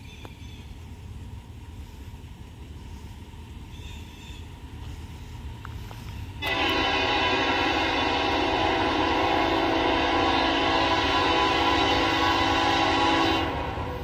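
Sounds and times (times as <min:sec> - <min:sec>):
low background rumble: 0:00.0 - 0:14.0
locomotive air horn: 0:06.4 - 0:14.0.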